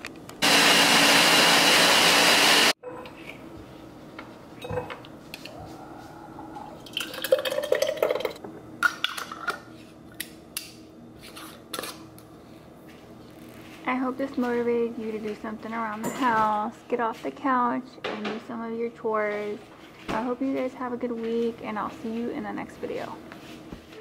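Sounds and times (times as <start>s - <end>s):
blender running: 0.4s - 2.8s.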